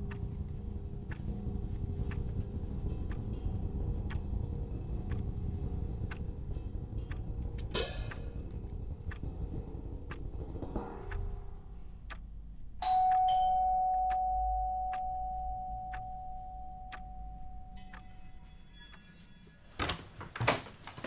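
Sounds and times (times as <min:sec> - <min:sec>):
clock ticking: 0:00.0 - 0:20.1
two-note doorbell chime: 0:12.8 - 0:19.9.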